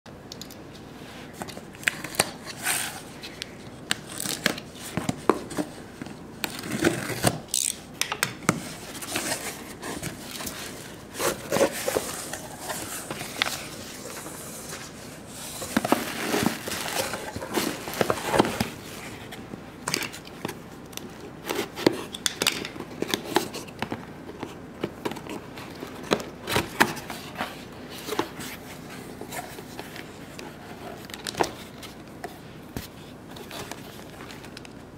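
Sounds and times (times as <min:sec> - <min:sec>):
cardboard and bubble wrap rustling: 0:08.4 - 0:34.9.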